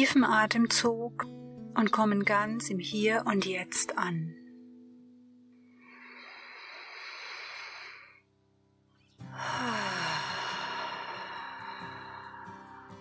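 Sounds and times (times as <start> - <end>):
soft background music: 0.0 - 13.0
deep breath: 5.6 - 8.3, 9.3 - 13.0.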